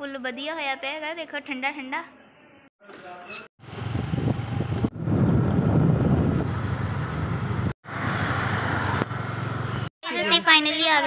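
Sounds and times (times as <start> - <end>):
vehicle engine hum and road noise: 3.6 - 9.9.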